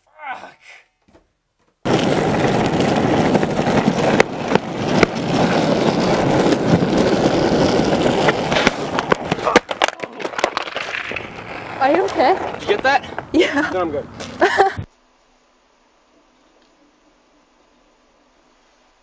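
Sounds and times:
skateboard wheels rolling on asphalt: 0:01.8 - 0:14.8
skateboard clattering on road: 0:01.9 - 0:14.5.

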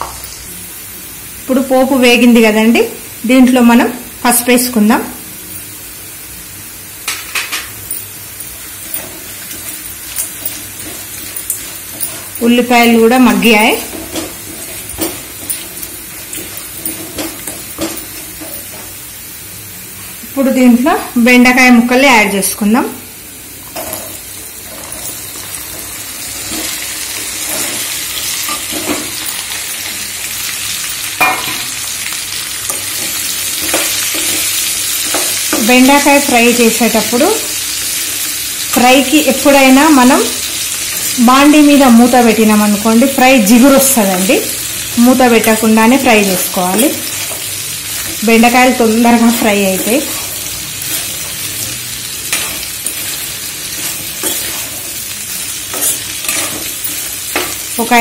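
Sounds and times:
onions sizzling in hot oil: 0:00.0 - 0:58.0
steel spoon scraping a pan: 0:08.4 - 0:18.9, 0:23.8 - 0:29.8, 0:32.4 - 0:35.7, 0:49.5 - 0:57.8
metal spatula scraping a pan: 0:50.0 - 0:57.6.

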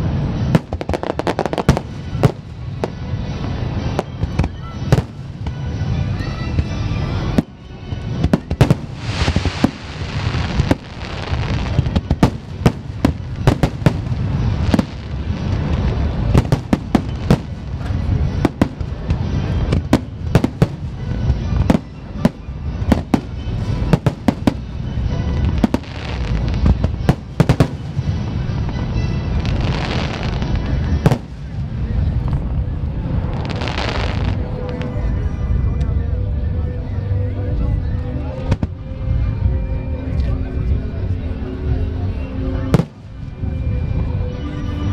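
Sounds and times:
fireworks bangs: 0:00.0 - 0:35.0, 0:42.7 - 0:43.3
fireworks crackling: 0:00.0 - 0:35.6, 0:42.6 - 0:43.8
low rumble: 0:00.0 - 0:44.9.

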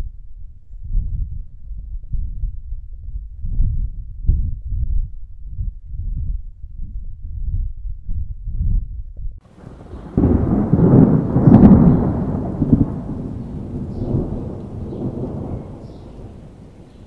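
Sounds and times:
thunder rumbling and cracking: 0:09.5 - 0:17.0.

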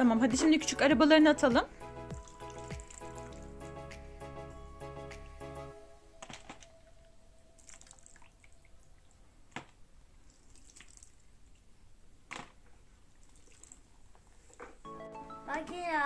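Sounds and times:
water drips and splashes: 0:02.1 - 0:03.5, 0:07.6 - 0:11.8, 0:13.0 - 0:14.8.

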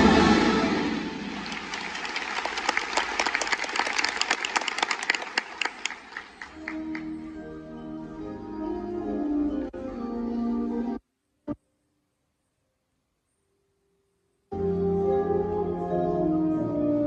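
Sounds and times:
audience applause: 0:01.1 - 0:07.2.

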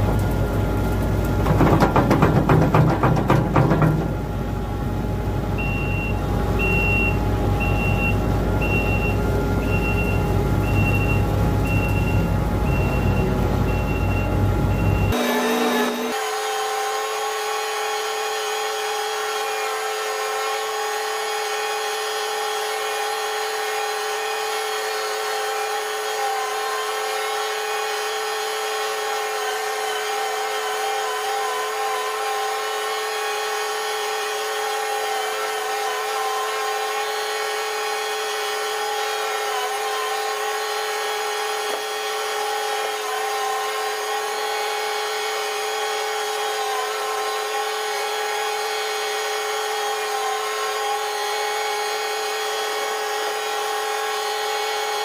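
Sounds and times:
machinery running with high whine: 0:00.0 - 0:54.9.

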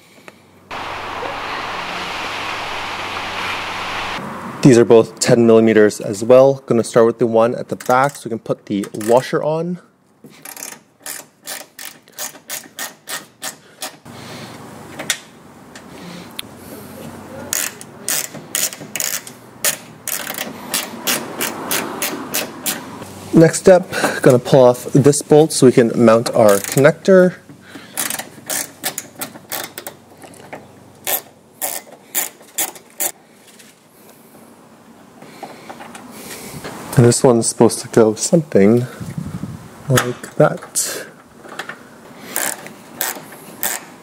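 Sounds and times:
steady hiss: 0:00.7 - 0:04.8
hand ratchet clicking: 0:42.4 - 0:43.9.

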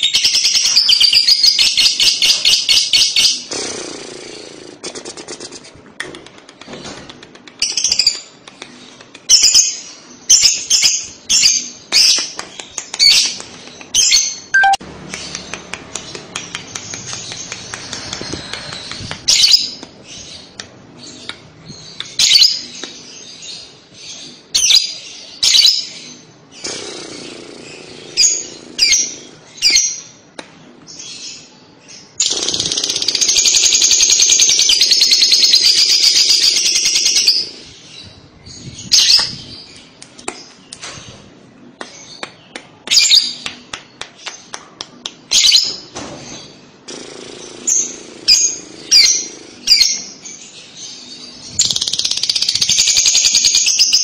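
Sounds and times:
lovebird chirping: 0:13.0 - 0:22.8.

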